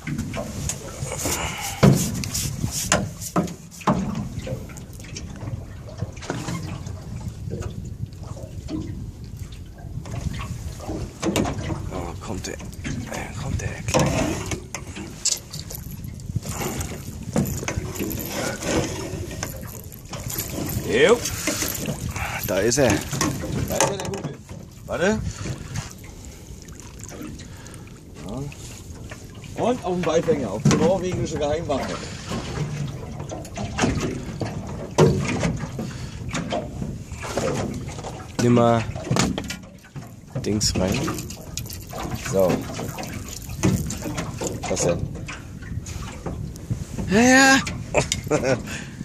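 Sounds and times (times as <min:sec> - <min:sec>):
water splashing and sloshing: 0:00.0 - 0:49.0
gear knocking against boat: 0:13.8 - 0:24.7, 0:33.2 - 0:45.4.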